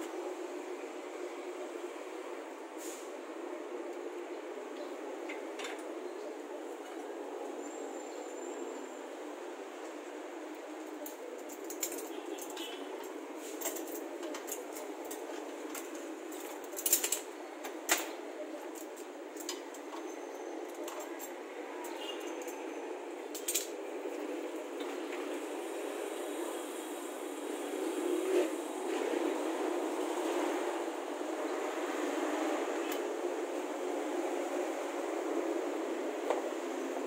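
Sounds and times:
steady background noise: 0.0 - 37.0
metallic clicks and clinks: 11.0 - 17.3.

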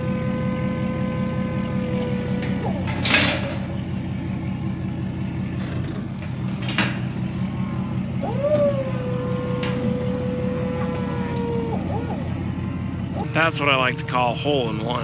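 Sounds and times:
steady high whine: 0.0 - 15.0
tractor engine running: 0.0 - 15.0
metal clank and knocks: 2.5 - 3.9, 5.6 - 7.2.

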